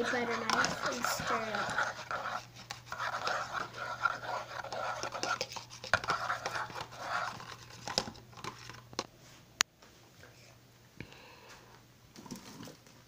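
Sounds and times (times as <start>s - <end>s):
knife stirring slime: 0.0s - 8.8s
low electrical hum: 0.0s - 13.0s.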